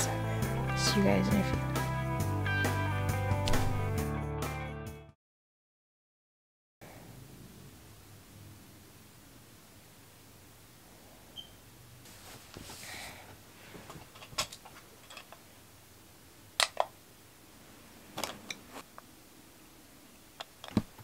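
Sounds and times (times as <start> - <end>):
blanket rustling: 12.0 - 13.9.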